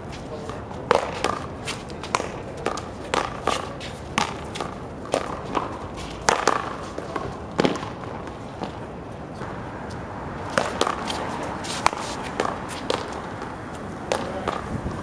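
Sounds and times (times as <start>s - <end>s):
paddles smacking rubber ball: 0.9s - 8.7s, 11.8s - 13.5s, 14.1s - 14.7s
ball slapping concrete wall: 4.2s - 7.9s, 11.8s - 14.7s.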